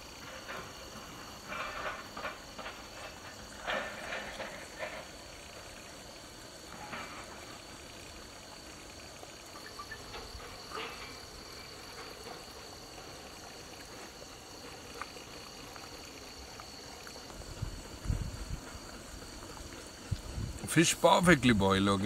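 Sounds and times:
crickets chirring: 0.0s - 22.0s.

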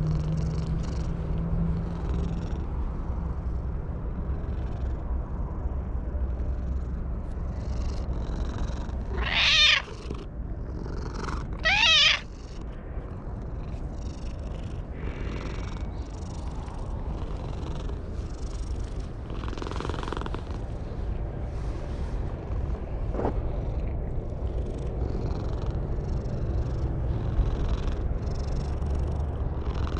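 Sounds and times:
cat purring: 0.0s - 3.6s, 6.4s - 20.8s, 23.4s - 29.9s
cat meowing: 9.1s - 10.1s, 11.6s - 12.3s.

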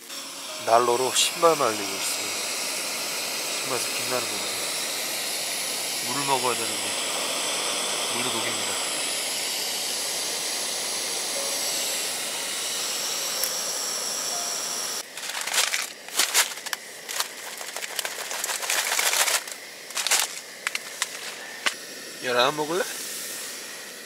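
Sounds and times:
ice sizzling in hot pan: 0.0s - 7.2s, 15.0s - 23.5s
gas heater hissing: 0.0s - 24.0s.

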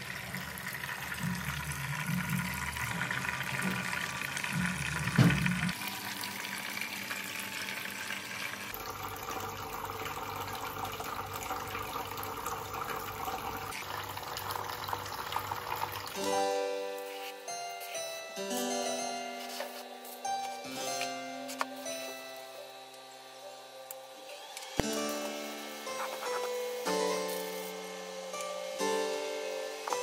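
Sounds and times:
water trickling into basin: 6.0s - 16.2s.

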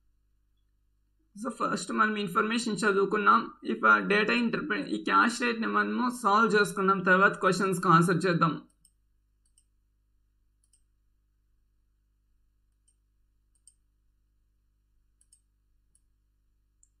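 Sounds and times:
faint computer mouse clicks: 8.7s - 9.7s, 10.6s - 10.9s, 12.7s - 13.8s, 15.2s - 16.1s.

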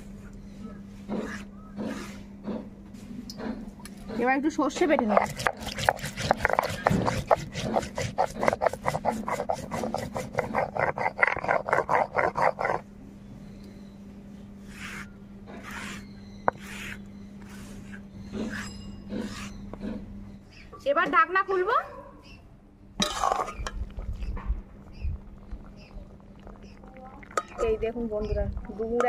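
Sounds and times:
stone roller rasping on stone slab: 4.9s - 12.8s, 14.6s - 20.0s
wooden stick scraping paste: 5.0s - 12.8s, 14.6s - 19.6s.

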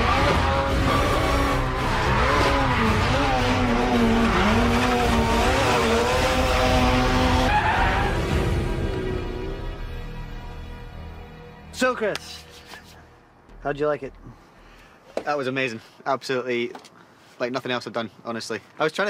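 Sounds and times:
tyres skidding: 0.0s - 9.6s
car engine revving: 0.0s - 9.8s.

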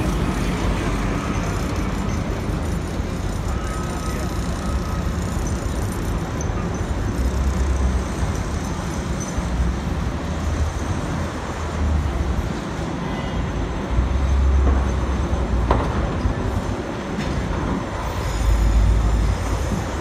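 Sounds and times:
city traffic noise: 0.0s - 20.0s.

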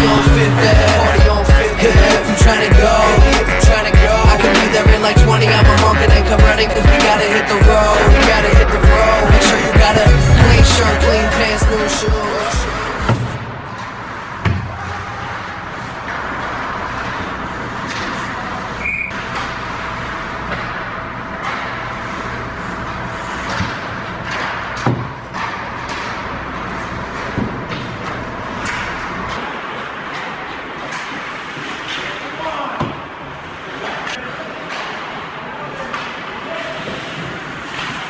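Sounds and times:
sticks hitting puck: 23.4s - 33.1s
skates scraping on ice: 35.8s - 38.0s.

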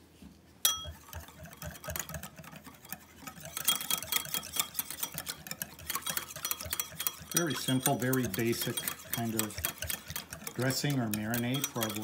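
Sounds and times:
wire whisk clicking against bowl: 3.3s - 12.0s.

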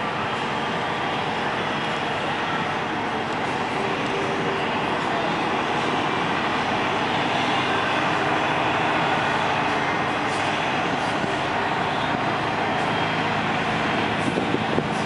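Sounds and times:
truck diesel engine running: 0.0s - 15.0s.

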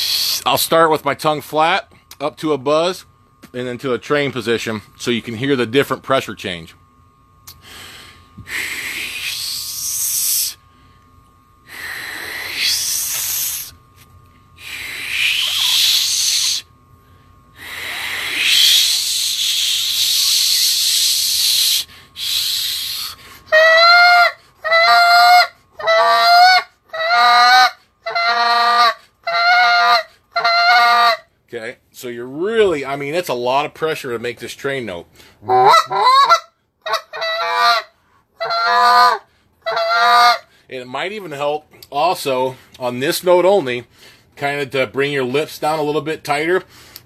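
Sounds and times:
air hissing through teeth: 0.0s - 0.5s, 7.5s - 10.6s, 11.7s - 13.8s, 14.6s - 16.7s, 17.6s - 23.3s
goose call honking: 23.6s - 31.2s, 35.5s - 40.4s.

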